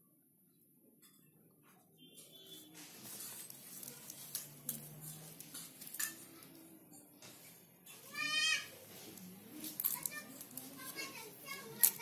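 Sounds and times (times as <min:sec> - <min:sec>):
sharp clicks and crackles: 0:09.1 - 0:12.0.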